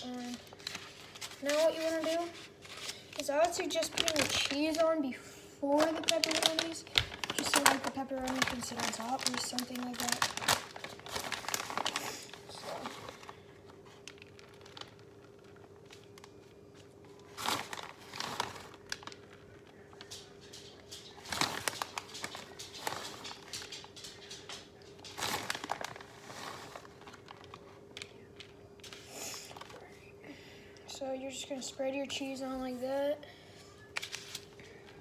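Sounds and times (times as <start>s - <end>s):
plastic bag crinkling: 0.0s - 30.0s, 33.9s - 35.0s
faint steady hum: 0.0s - 35.0s.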